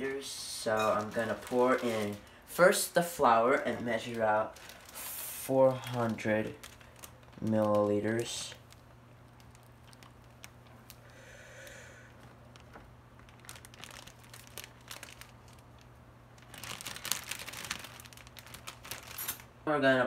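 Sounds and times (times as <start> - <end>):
light clicks and crinkling: 5.8 - 11.2, 12.1 - 19.5.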